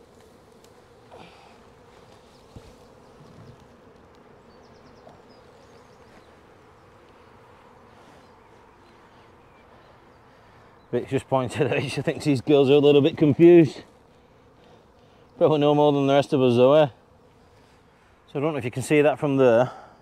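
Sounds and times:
bees buzzing: 0.0 - 20.0.

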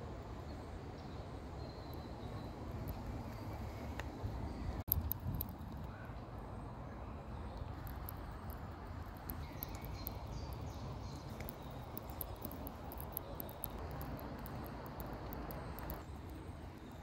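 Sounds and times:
insects ticking: 7.4 - 17.0.

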